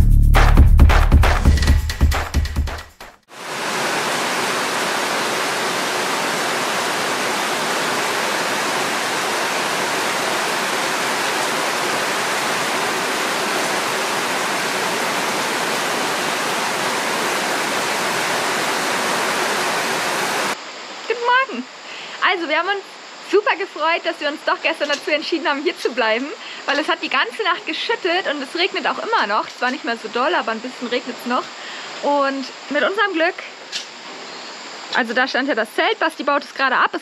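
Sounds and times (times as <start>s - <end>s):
water rushing: 3.3s - 35.4s.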